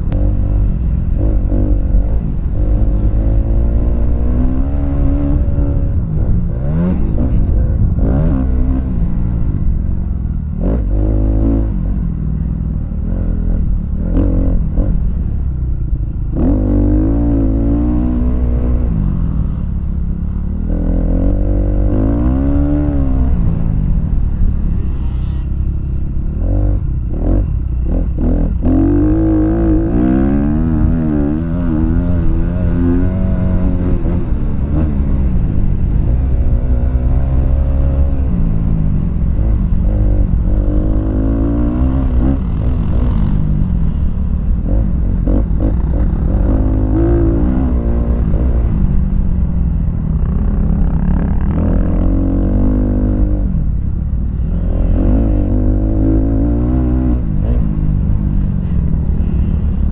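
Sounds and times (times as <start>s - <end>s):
low rumble: 0.0s - 59.9s
dirt bike engine revving: 24.6s - 38.6s.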